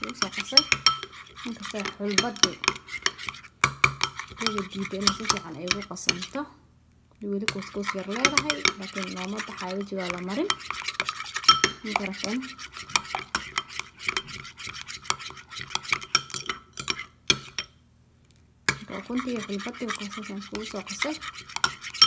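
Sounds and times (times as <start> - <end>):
spoon stirring thick paste: 0.0 - 6.4, 7.4 - 17.8, 18.7 - 22.0
spoon clinking against glass: 8.1 - 12.0.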